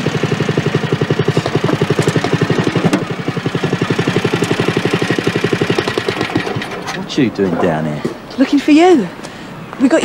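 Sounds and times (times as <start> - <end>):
go-kart engine idling: 0.0 - 7.4.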